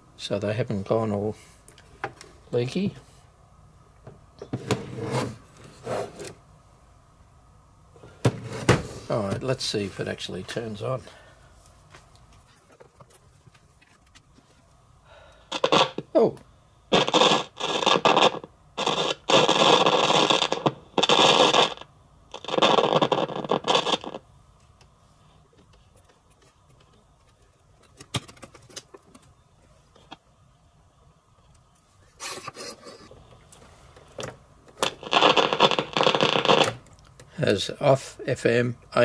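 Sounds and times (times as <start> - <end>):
radio static bursts: 15.5 - 16.1, 16.9 - 24.2, 34.8 - 36.8.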